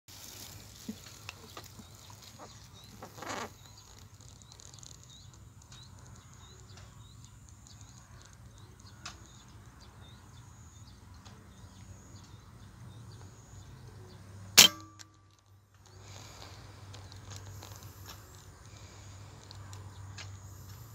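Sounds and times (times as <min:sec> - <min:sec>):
air rifle shot: 0:14.6 - 0:15.0.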